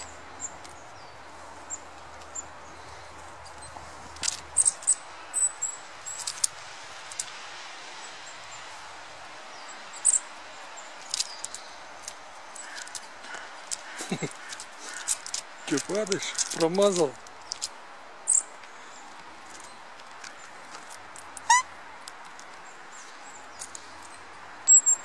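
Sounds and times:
outdoor hiss: 0.0 - 24.7
songbirds chipping: 0.0 - 25.0
sharp clicks and scratches: 6.1 - 7.4, 11.0 - 17.8.

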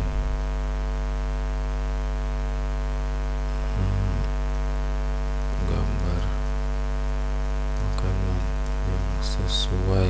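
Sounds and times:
electrical mains hum: 0.0 - 10.0
low voice murmur: 3.7 - 4.3.

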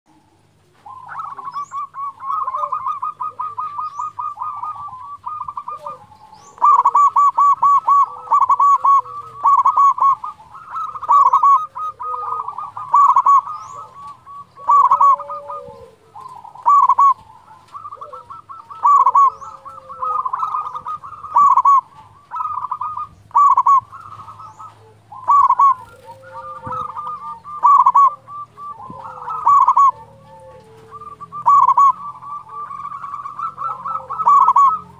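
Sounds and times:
dove cooing: 0.1 - 34.9.

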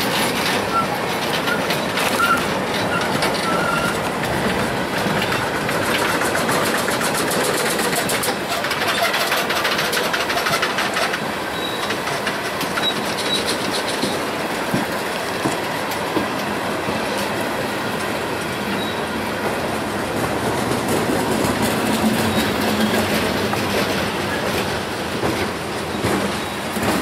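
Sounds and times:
train wheels clicking over rail joints: 0.0 - 27.0
high wheel squeaks: 0.3 - 4.4, 5.1 - 14.3, 18.7 - 19.2, 21.6 - 27.0.

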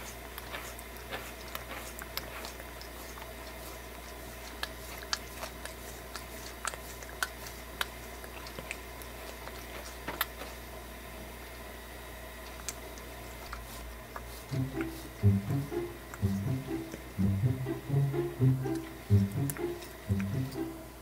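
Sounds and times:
cat licking its paw: 0.0 - 10.8, 12.4 - 17.1.

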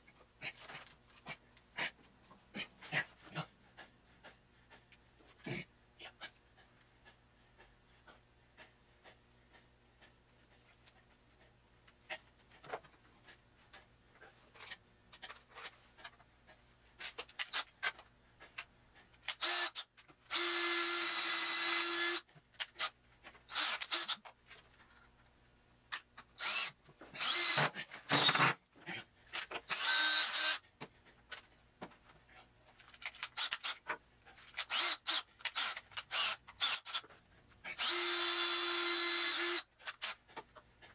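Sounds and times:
drill boring into wood: 19.4 - 22.2, 23.5 - 24.2, 26.4 - 28.6, 29.7 - 30.6, 34.6 - 37.0, 37.8 - 40.2.

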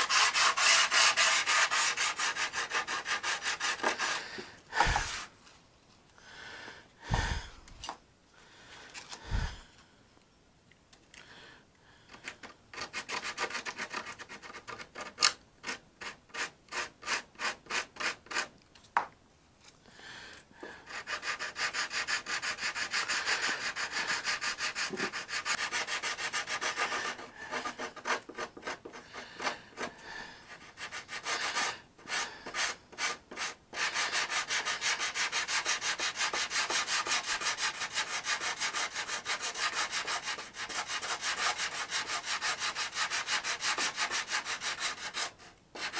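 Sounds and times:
sandpaper rubbing: 0.0 - 4.2, 20.9 - 29.9, 30.5 - 45.9.

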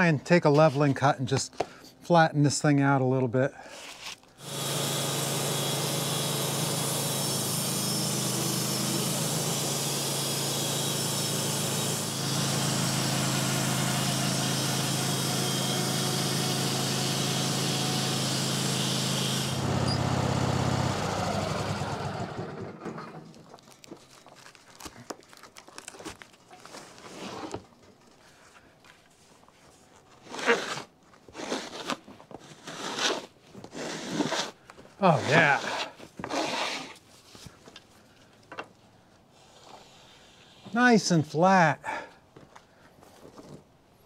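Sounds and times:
saw blade hissing through wood: 4.4 - 19.6, 32.6 - 37.0, 39.3 - 41.2
sawmill motor hum: 4.4 - 23.2.

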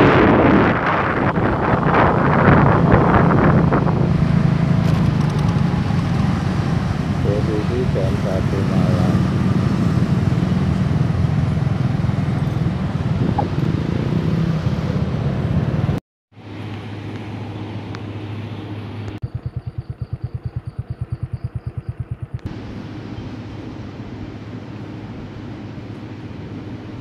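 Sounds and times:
low even pulsing: 0.0 - 14.3
wind noise on microphone: 0.0 - 16.0
motorcycle engine: 0.0 - 27.0.

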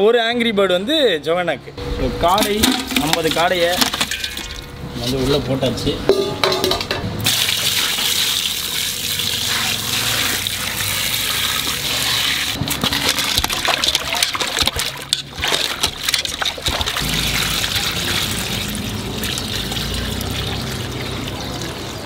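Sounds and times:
water pouring into metal bowl: 7.2 - 22.0
water sloshing and splashing: 7.3 - 22.0.

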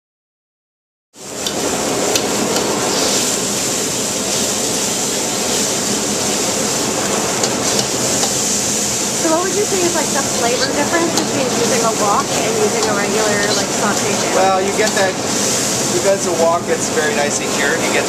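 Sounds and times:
food sizzling: 1.2 - 18.0
gas burner flame roaring: 1.2 - 18.0
ladle clicking against wok: 7.4 - 8.4.

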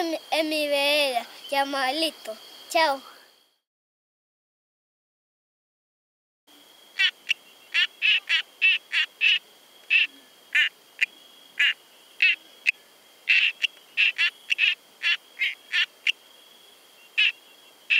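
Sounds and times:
tree frogs calling: 6.5 - 17.9.

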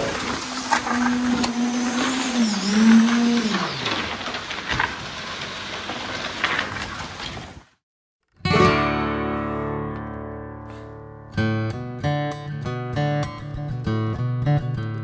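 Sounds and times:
small electric motor whining: 0.0 - 5.0.

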